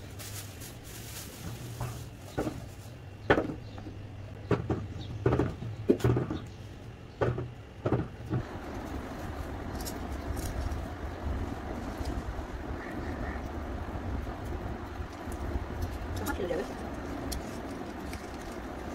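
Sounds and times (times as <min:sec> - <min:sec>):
low steady hum: 0:00.0 - 0:18.9
steady rushing noise: 0:08.3 - 0:18.9.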